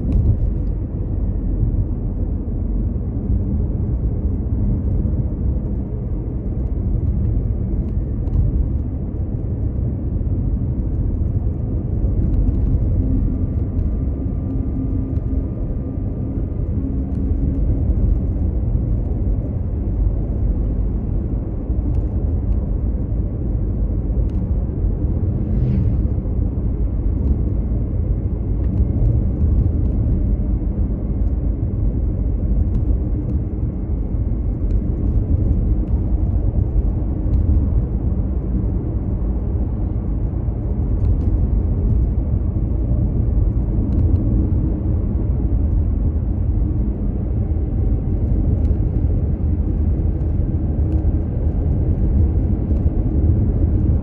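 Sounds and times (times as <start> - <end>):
tyres rumbling on tarmac: 0.0 - 54.0.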